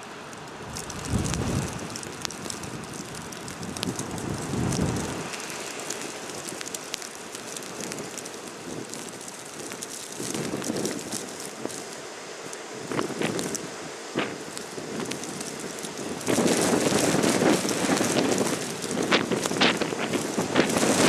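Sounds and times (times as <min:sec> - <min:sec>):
blizzard wind on microphone: 0:00.0 - 0:21.0
low buffeting gusts: 0:00.0 - 0:21.0
light ticks: 0:00.4 - 0:11.9.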